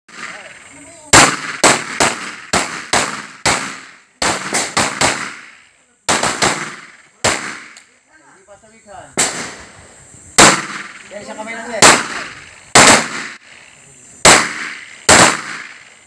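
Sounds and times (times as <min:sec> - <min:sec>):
pistol shots echoing: 0:00.1 - 0:07.8, 0:10.4 - 0:11.1, 0:11.8 - 0:13.4, 0:14.2 - 0:15.9.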